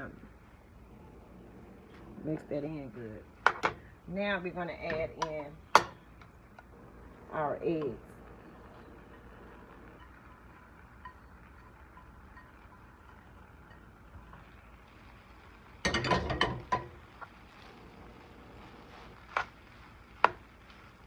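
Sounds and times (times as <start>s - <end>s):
metal spoon clinking on pan: 10.0s - 14.4s, 15.8s - 17.0s.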